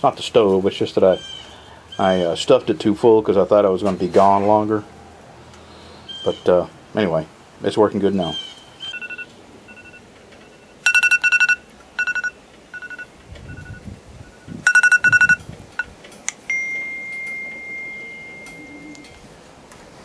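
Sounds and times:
electronic alarm beeps: 8.9 - 15.9
steady high tone: 8.9 - 19.2.

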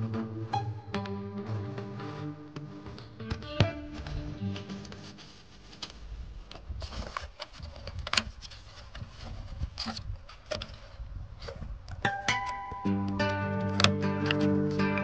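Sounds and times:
guitar music: 0.0 - 5.3, 12.1 - 15.0.

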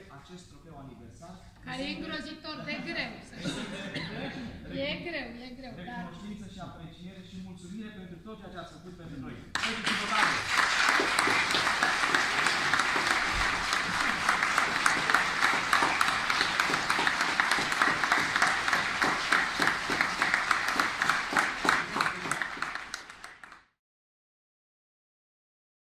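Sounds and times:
audience applauding: 9.5 - 23.7.

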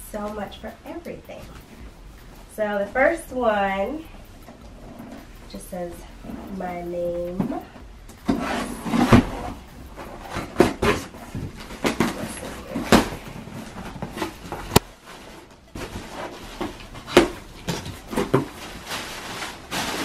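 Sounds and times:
cardboard scraping and knocking: 8.3 - 20.0
tissue paper rustling: 11.2 - 20.0.

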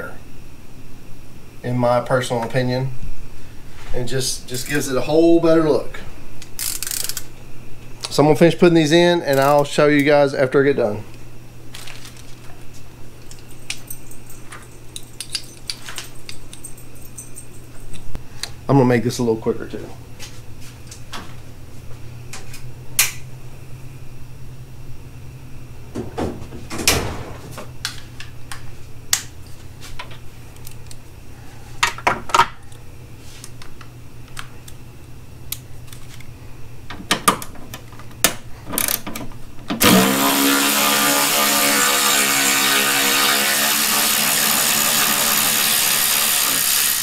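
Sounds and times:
electric ratchet motor: 6.6 - 7.3, 39.8 - 47.0.

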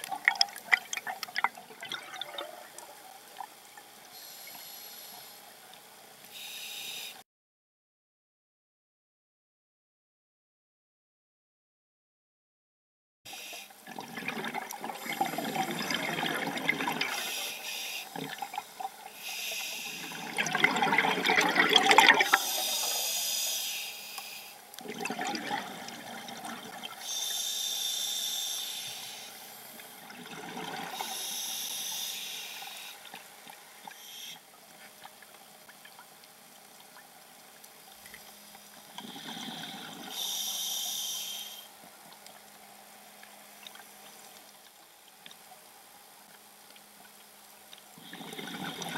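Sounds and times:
exhaled bubbles rushing: 0.0 - 2.8, 13.9 - 17.2, 20.2 - 22.4, 24.8 - 26.9
regulator inhalation hiss: 4.1 - 5.4, 6.3 - 7.2, 13.3 - 13.7, 17.1 - 18.2, 19.1 - 20.3, 22.3 - 24.6, 27.0 - 29.8, 31.0 - 33.0, 39.3 - 41.7.

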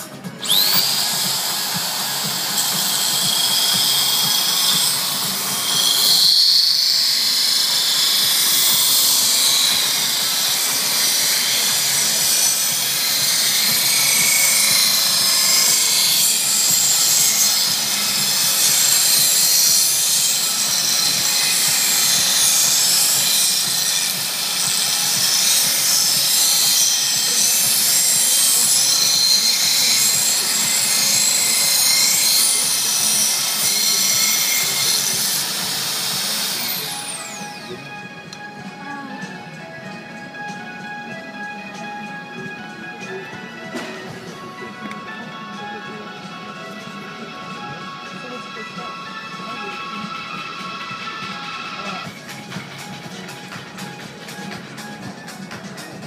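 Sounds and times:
belt grinder whining: 0.0 - 56.0
glass grinding hiss: 0.5 - 37.5.

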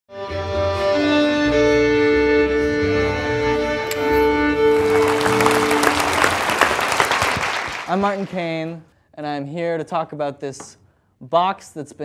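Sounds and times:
applause: 4.6 - 8.8.

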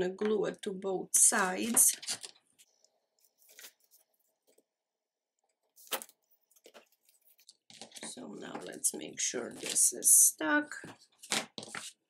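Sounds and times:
soft paper rustles and clicks: 1.4 - 4.7, 5.7 - 9.9, 10.8 - 12.0.

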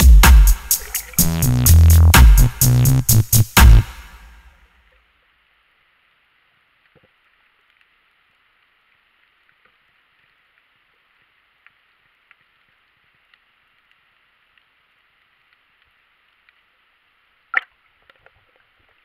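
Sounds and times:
faint underwater hiss: 0.0 - 1.2
faint clicks: 6.8 - 16.8.

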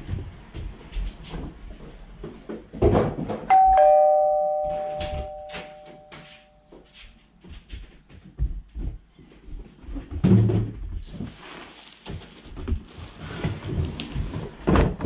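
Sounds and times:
two-note doorbell chime: 3.5 - 6.6.

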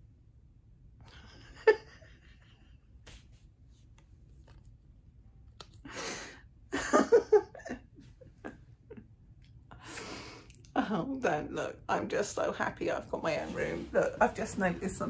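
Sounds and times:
woman laughing softly: 1.0 - 3.2, 5.8 - 10.4.

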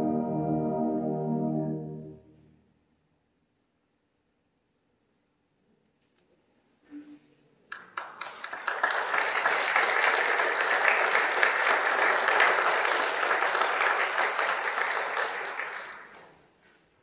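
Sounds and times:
audience applauding: 7.7 - 16.5.

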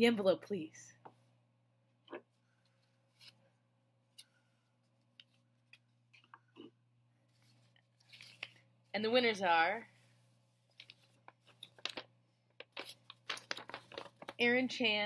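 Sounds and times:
paper rustling and clicking: 7.4 - 8.6, 10.7 - 14.4.

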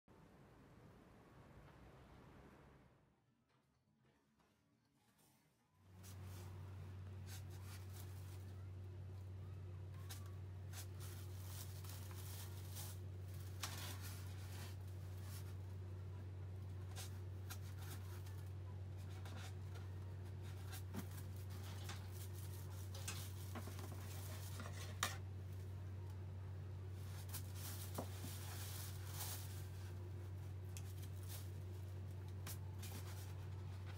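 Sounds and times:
soft rubbing and scraping: 5.0 - 8.8, 10.0 - 15.9, 16.6 - 25.7, 26.9 - 33.9
steady low hum: 5.7 - 33.9.

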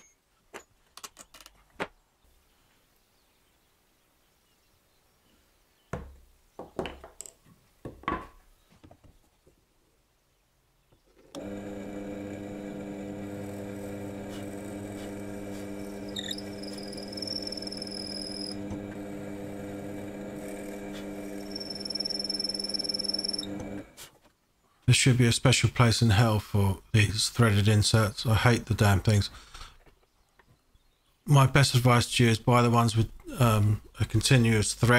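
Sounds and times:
drill press motor humming: 11.2 - 24.0
drill bit whining into wood: 11.3 - 24.0.

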